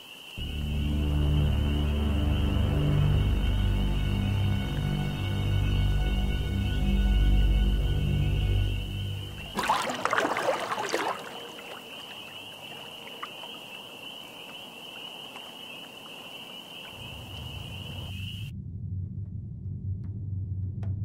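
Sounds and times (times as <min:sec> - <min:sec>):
water lapping and trickling: 0:01.7 - 0:18.4
water splashing from swimming: 0:09.3 - 0:18.1.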